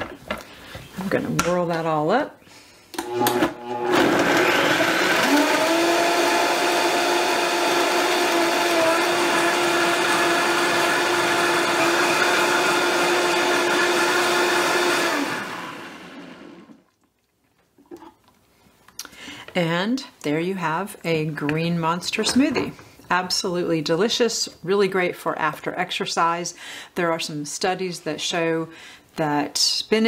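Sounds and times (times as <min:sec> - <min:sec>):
blender crushing ice: 0:03.0 - 0:16.8.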